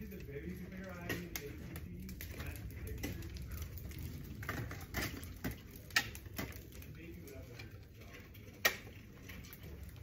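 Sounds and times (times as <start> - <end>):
steady low rumble: 0.0 - 7.2
sharp clicks and cracks: 0.0 - 10.0.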